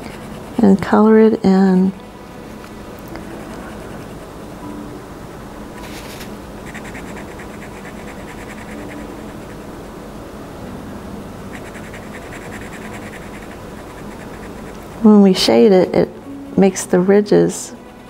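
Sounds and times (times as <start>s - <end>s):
pen scratching on paper: 3.2s - 4.2s, 5.8s - 9.6s, 11.5s - 15.1s.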